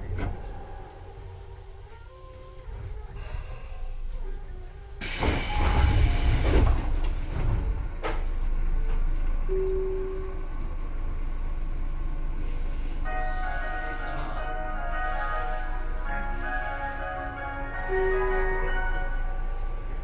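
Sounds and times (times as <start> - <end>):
steady low rumble: 0.0 - 5.1, 6.0 - 20.0
compressed air hissing: 5.0 - 6.4.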